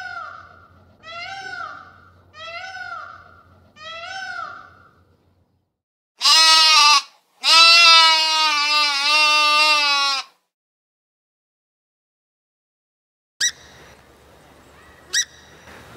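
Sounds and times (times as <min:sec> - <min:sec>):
goat bleating: 0:06.2 - 0:10.4.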